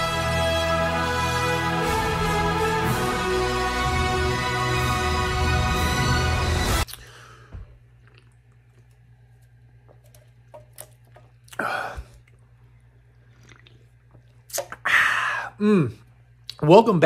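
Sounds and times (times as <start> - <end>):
low steady hum: 6.8 - 17.0.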